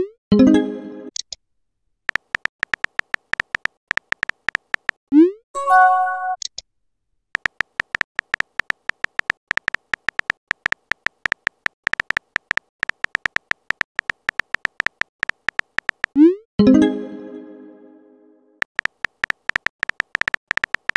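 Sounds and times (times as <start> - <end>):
keyboard tap clicks: 2.1 - 5.0, 7.4 - 16.2, 18.7 - 20.9
short multi-tone chime: 5.6 - 6.4.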